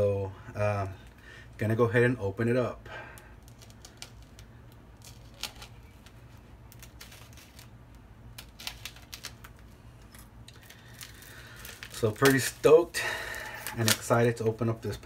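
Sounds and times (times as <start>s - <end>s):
razor blade cutting plastic: 13.4s - 14.2s.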